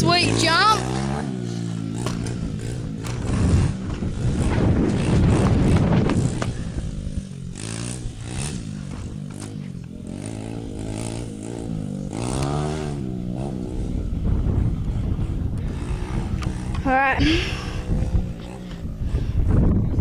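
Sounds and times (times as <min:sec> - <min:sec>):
dirt bike engine revving: 0:00.0 - 0:19.8.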